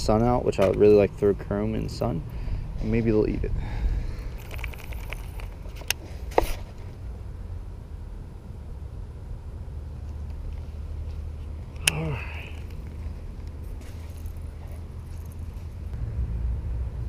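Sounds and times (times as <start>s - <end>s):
wind rumble on microphone: 1.9s - 5.9s.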